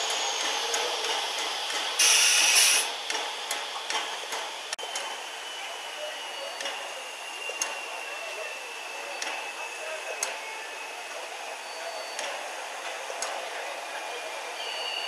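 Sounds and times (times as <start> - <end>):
train running noise: 0.0 - 15.0
compressed air hiss: 2.0 - 2.9.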